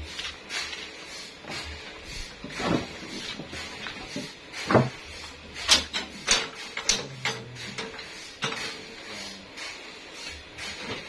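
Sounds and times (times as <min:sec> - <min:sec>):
log knocking and clanking on carriage: 0:02.4 - 0:05.0.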